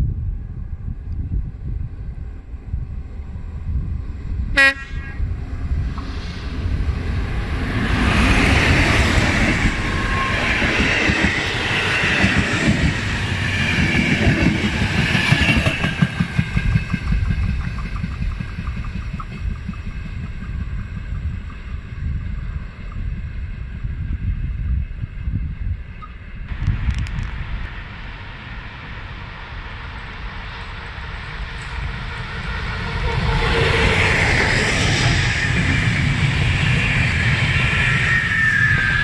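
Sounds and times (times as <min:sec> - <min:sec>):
locomotive horn blast: 0:04.6 - 0:05.3
train wheels clattering on rails: 0:07.6 - 0:22.2.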